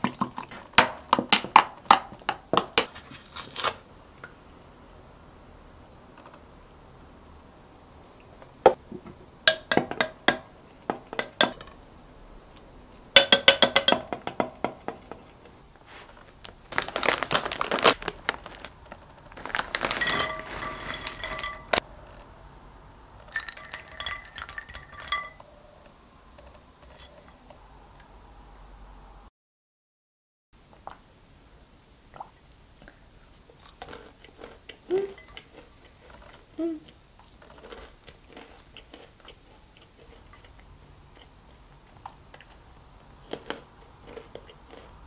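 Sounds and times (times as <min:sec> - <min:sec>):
snack bag rustling: 0:15.8 - 0:21.8
snacks clattering into ceramic bowl: 0:19.4 - 0:21.8, 0:23.2 - 0:25.5, 0:33.6 - 0:36.3
metal spoon clinking on glass mug: 0:20.0 - 0:21.8, 0:23.3 - 0:25.5, 0:35.1 - 0:35.4.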